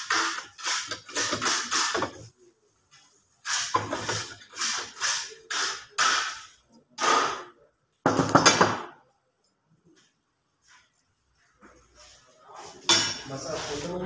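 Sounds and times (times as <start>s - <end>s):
steel scraping on steel: 3.4s - 6.4s.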